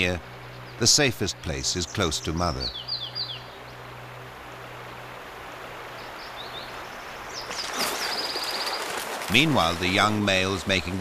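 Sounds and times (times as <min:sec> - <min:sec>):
bird trill: 0:01.8 - 0:03.6
bird chirps: 0:01.8 - 0:03.8, 0:06.0 - 0:09.0
river water rushing: 0:03.0 - 0:11.0.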